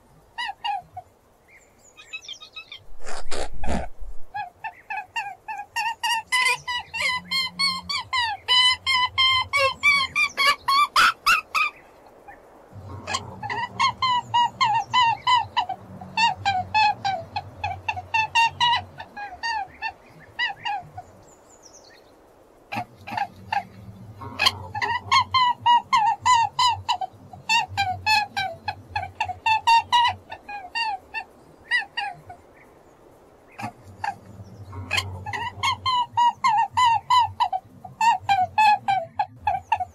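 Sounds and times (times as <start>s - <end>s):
rabbit squealing: 2.6s - 4.3s.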